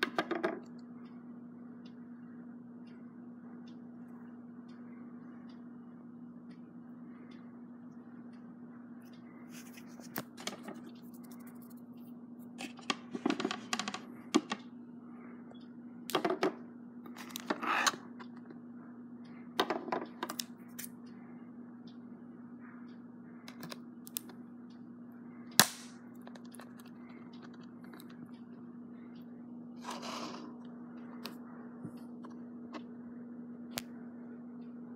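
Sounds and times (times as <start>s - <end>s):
sharp plastic snap: 25.6s - 26.0s.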